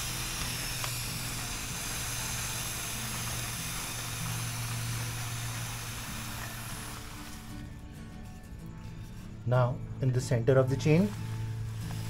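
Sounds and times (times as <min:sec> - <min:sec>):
aerosol spray hiss: 0:00.0 - 0:07.7, 0:11.1 - 0:12.0.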